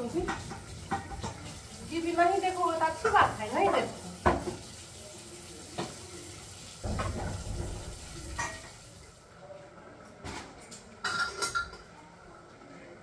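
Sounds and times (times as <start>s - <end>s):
pots and utensils knocking: 0.0s - 1.6s, 6.8s - 8.8s, 11.0s - 11.8s.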